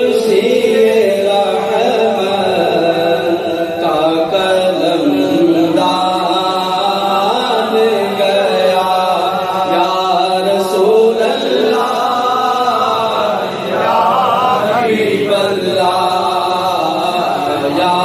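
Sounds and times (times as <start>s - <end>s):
man singing through a microphone: 0.0s - 18.0s.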